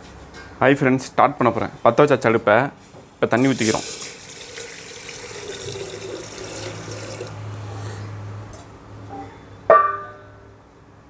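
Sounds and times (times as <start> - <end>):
water pouring into metal pot: 3.4 - 7.4
metallic clank: 9.1 - 10.5.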